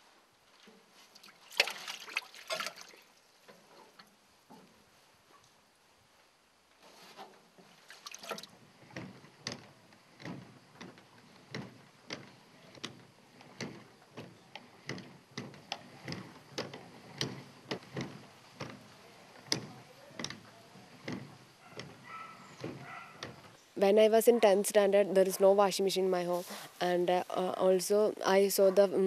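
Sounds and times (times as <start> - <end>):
washing machine drum turning with water: 7.5 - 23.6.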